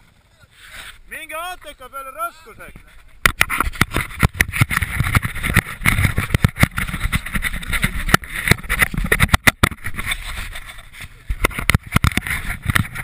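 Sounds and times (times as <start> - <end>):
sharp crackles and knocks: 2.8 - 13.0.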